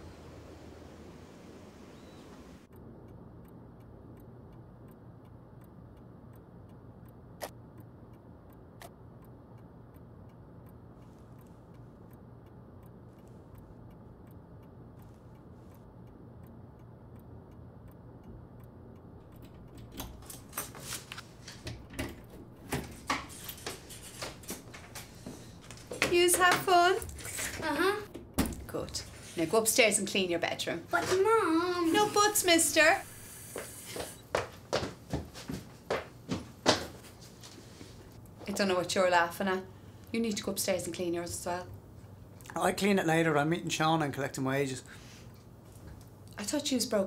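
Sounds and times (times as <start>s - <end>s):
clock ticking: 2.0s - 34.4s, 38.2s - 45.2s
irregular clicks and knocks: 17.9s - 29.3s.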